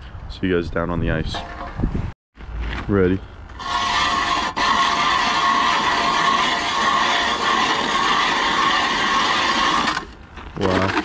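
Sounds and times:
blades grinding ice: 3.6 - 11.0
ice auger whining: 3.6 - 11.0.

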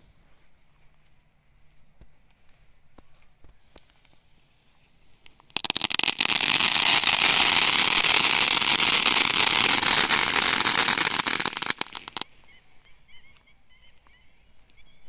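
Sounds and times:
firework hissing and crackling: 5.2 - 12.2.

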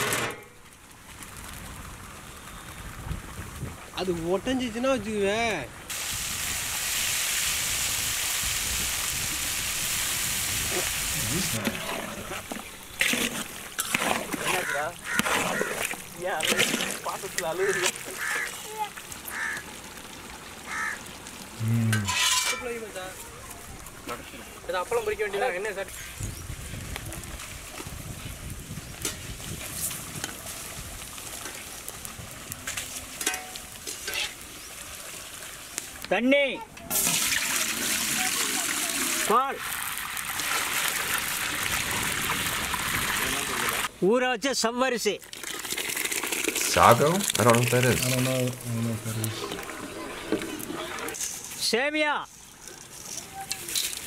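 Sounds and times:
knocks and scrapes: 0.0 - 0.6, 11.4 - 17.1, 21.9 - 22.8
food sizzling in hot oil: 5.9 - 23.2, 24.7 - 36.2, 36.9 - 43.9, 45.2 - 51.7
milk squirting into pail: 11.4 - 18.5, 45.2 - 51.2.

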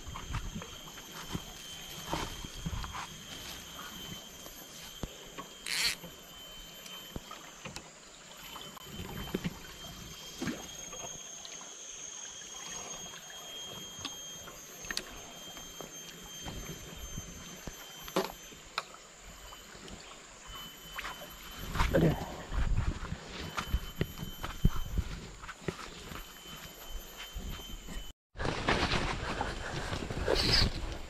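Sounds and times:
high insect whine: 0.0 - 28.1
fishing reel clicks and knocks: 5.6 - 6.1.

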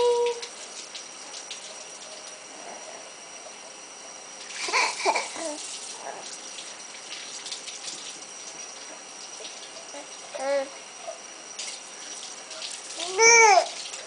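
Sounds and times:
tap water running into sink: 4.4 - 9.9
baby babbling: 4.7 - 5.6, 10.0 - 10.8, 13.0 - 13.8.

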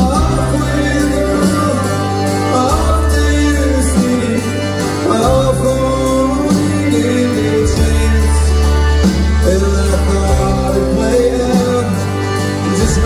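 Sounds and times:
bass line: 0.0 - 13.0
country band playing live: 0.0 - 13.0
guitar: 0.0 - 13.0.

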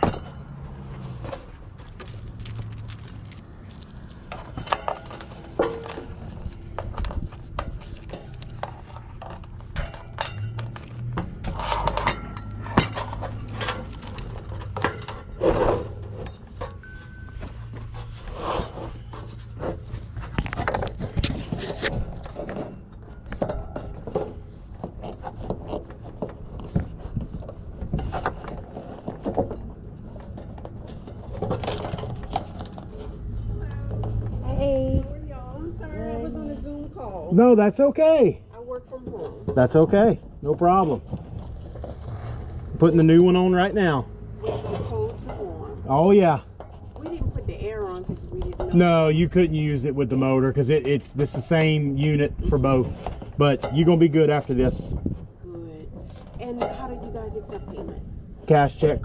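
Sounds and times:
plastic clicks rattles and scrapes: 1.8 - 15.2.

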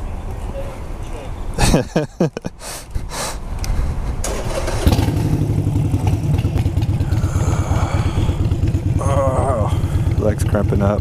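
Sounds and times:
motorcycle engine running: 4.4 - 11.0.

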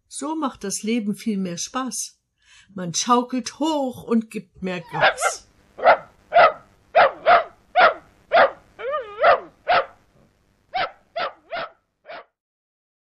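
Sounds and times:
dog whining: 4.9 - 9.9
dog barking: 4.9 - 10.0, 10.7 - 12.4.

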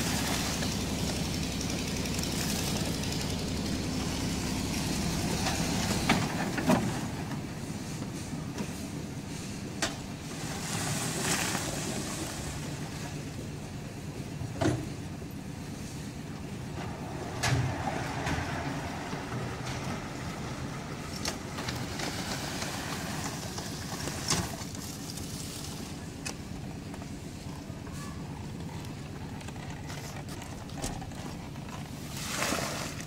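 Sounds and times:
concrete mixer engine running: 0.0 - 33.0.

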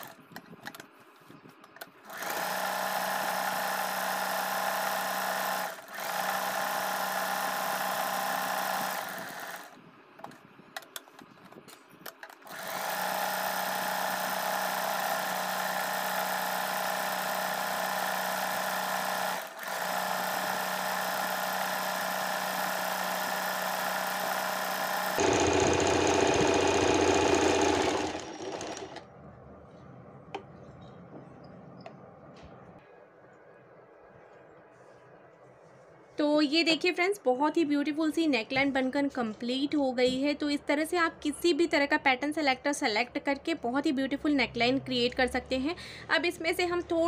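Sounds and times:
electric sewing machine running: 2.1 - 9.8, 12.4 - 29.0.

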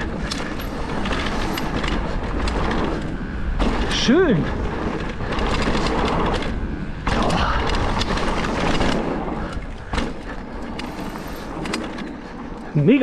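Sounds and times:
bike knocking and rattling: 0.0 - 13.0
bike tyres on dirt trail: 0.0 - 13.0.

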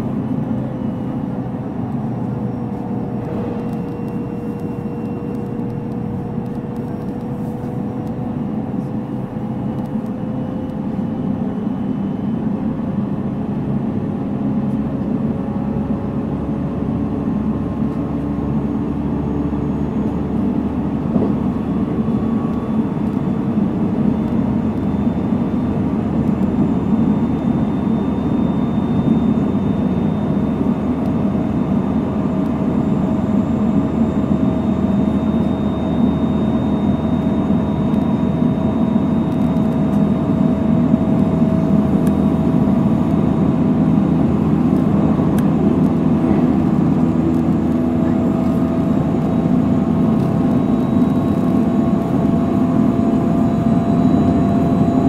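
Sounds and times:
train wheels rumbling on rail: 0.1 - 10.1.

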